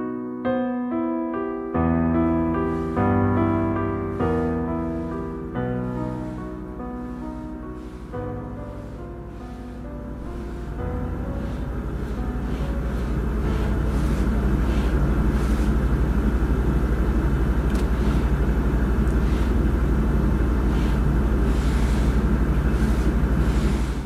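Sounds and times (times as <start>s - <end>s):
deep rumbling drone: 1.8s - 24.0s
soft swishes: 2.5s - 16.0s.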